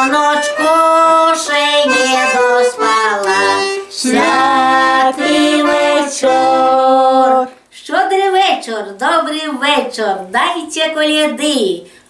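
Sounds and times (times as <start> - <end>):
button accordion playing: 0.0 - 7.4
woman singing folk carol: 0.0 - 9.5.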